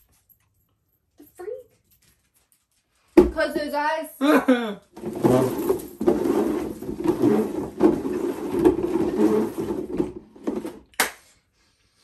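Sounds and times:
plastic boxes scraping on tiles: 0:05.0 - 0:10.9.

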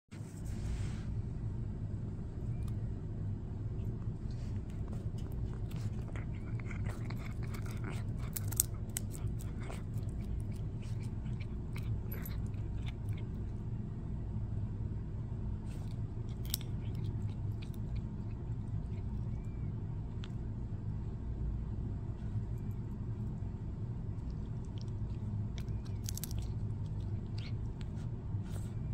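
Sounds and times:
steady low hum: 0:00.1 - 0:28.9
cat chewing on wooden stick: 0:03.7 - 0:13.8, 0:15.7 - 0:20.5, 0:22.4 - 0:28.9.

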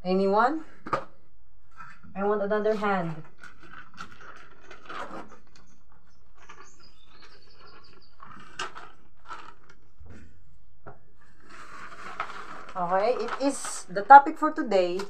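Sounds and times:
paper crackle: 0:03.2 - 0:10.4, 0:11.2 - 0:15.0
small birds chirping: 0:03.6 - 0:09.1
paper sheet rustling: 0:11.3 - 0:15.0.

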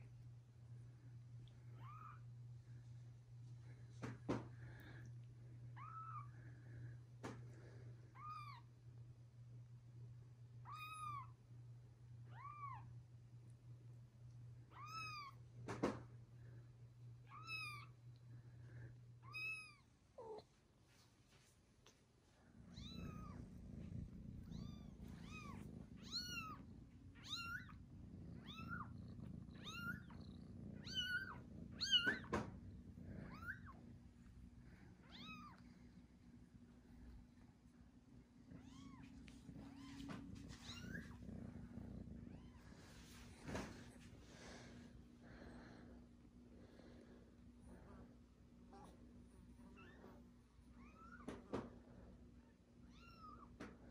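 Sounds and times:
low steady hum: 0:00.0 - 0:53.9
kittens mewing: 0:22.6 - 0:33.9.

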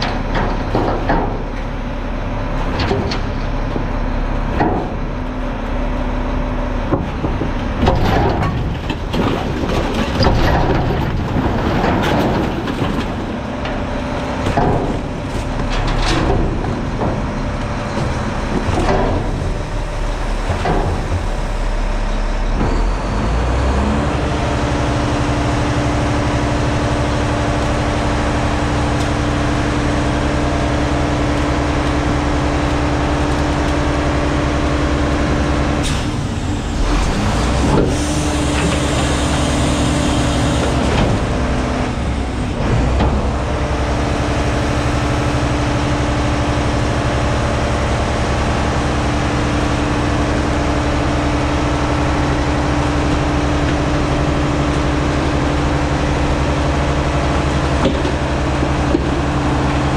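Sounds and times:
knocks and clunks: 0:00.0 - 0:01.7, 0:02.6 - 0:03.9, 0:04.5 - 0:05.1, 0:06.8 - 0:21.8, 0:57.3 - 0:59.9
garbage truck engine and hydraulics: 0:00.0 - 0:59.9.

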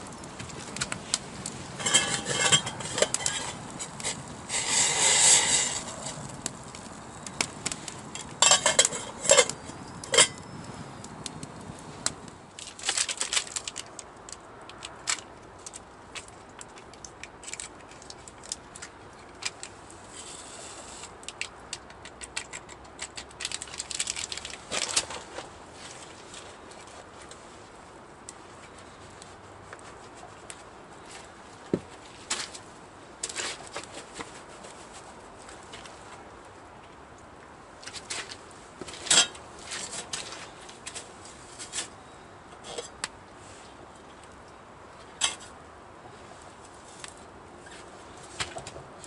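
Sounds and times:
campfire crackling and popping: 0:00.0 - 0:25.4
cookware clinking and clattering: 0:01.8 - 0:03.6, 0:08.4 - 0:10.4.

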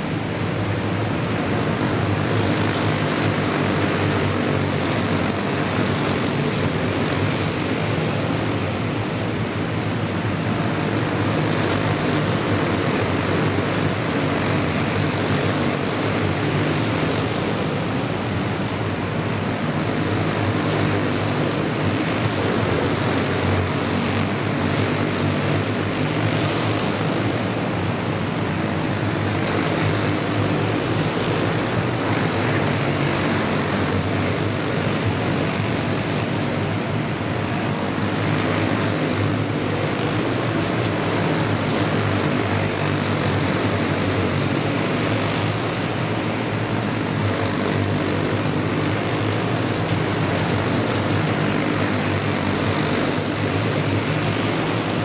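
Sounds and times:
go-kart engines droning: 0:00.0 - 0:55.0.

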